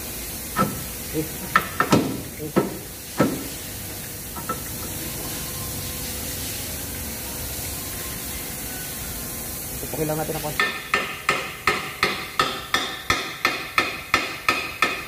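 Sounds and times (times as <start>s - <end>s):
steady hiss: 0.0s - 14.9s
sharp metal knocks: 10.6s - 15.0s.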